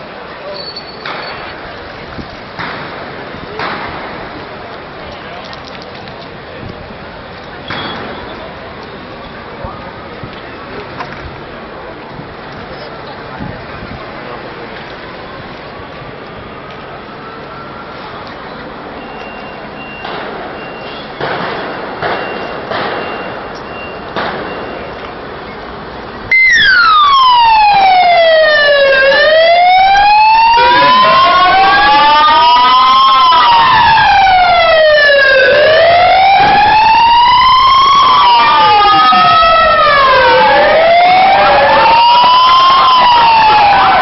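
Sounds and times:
street noise: 0.0s - 44.0s
emergency vehicle siren wailing: 16.5s - 25.2s, 26.2s - 44.0s.

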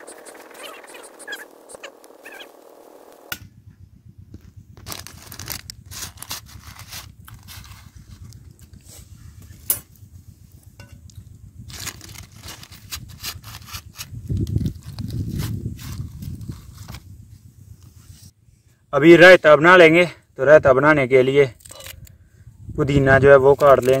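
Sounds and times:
wind rumble on microphone: 3.3s - 18.7s, 21.8s - 24.0s
newspaper crinkling and rustling: 4.8s - 8.3s, 11.7s - 17.0s.

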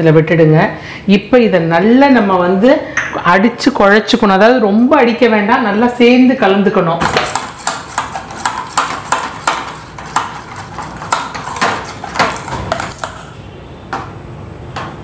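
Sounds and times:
metal spoon clacking in steel bowl: 7.3s - 13.4s.

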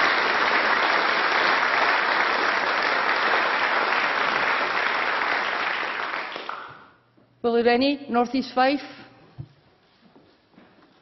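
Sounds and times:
crowd applause: 0.0s - 6.9s.

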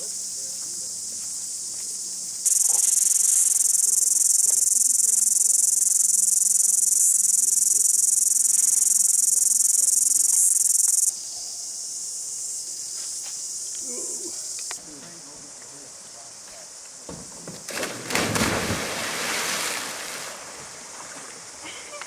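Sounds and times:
cicadas shrilling: 0.0s - 22.0s.

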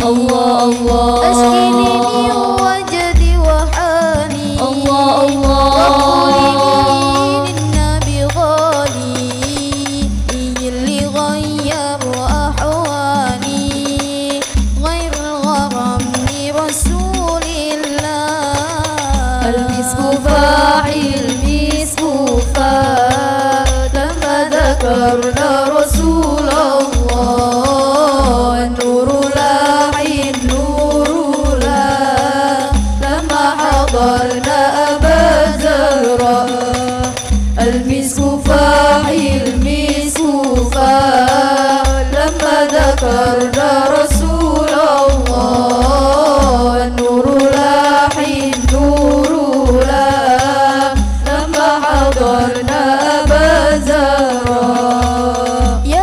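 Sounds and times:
devotional song over sound system: 0.0s - 56.0s
heavy bass notes: 0.9s - 11.2s.

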